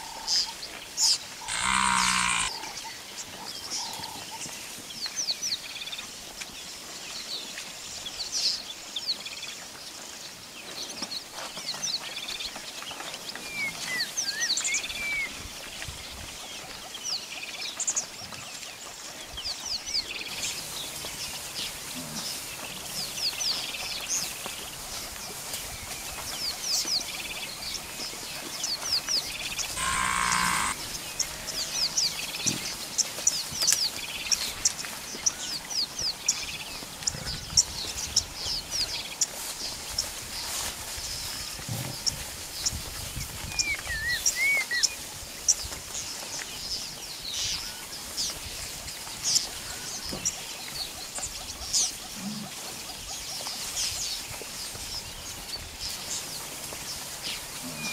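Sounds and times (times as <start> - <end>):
buffalo grunting: 1.4 - 2.5, 29.8 - 31.7, 57.6 - 57.9
harsh rasping call: 1.4 - 2.5, 29.7 - 31.7
high falling bird chirps: 1.5 - 2.6.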